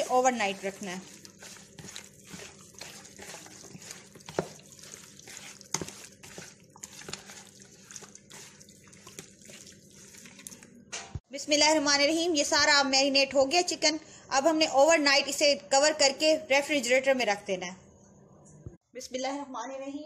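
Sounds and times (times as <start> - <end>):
hand squelching raw chicken: 0.0 - 10.7.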